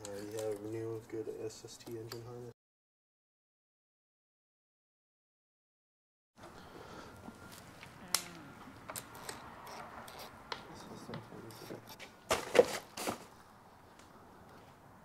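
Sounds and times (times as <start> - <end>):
metal tools clicking and clinking: 0.0 - 0.8, 8.9 - 12.0.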